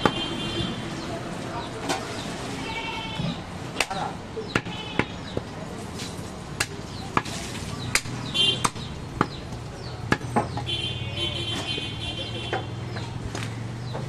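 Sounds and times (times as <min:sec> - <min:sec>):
cleaver chopping meat on wood: 0:03.8 - 0:05.5, 0:06.6 - 0:10.7.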